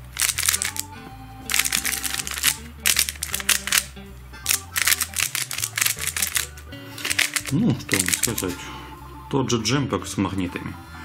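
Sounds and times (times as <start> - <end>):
puzzle cube layers clicking: 0.0 - 0.9, 1.5 - 3.9, 4.5 - 8.5
background music with bass line: 0.0 - 11.0.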